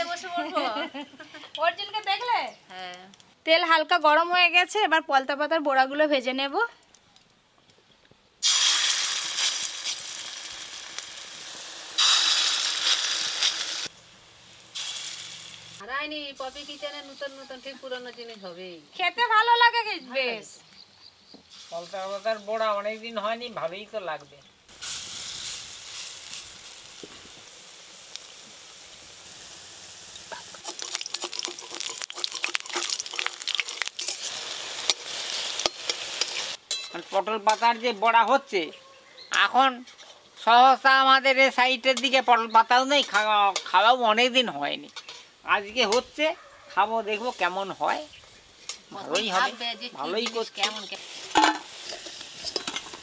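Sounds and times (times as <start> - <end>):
batter sizzling in hot oil: 8.4 - 18.2, 21.0 - 23.2, 24.7 - 38.3, 47.0 - 53.0.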